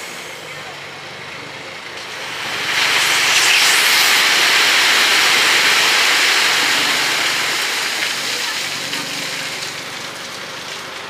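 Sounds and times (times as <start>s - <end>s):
compressed air hissing: 2.1s - 7.6s.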